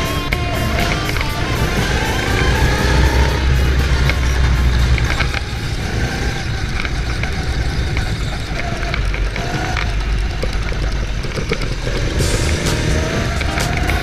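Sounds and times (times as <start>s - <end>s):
go-kart engine running: 0.0s - 14.0s
rattles and clicks: 0.0s - 14.0s.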